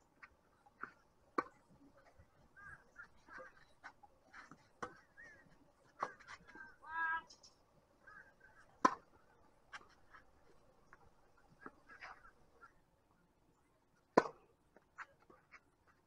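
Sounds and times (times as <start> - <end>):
tennis ball struck by racket: 1.4 - 1.6, 8.8 - 9.1, 14.2 - 14.4.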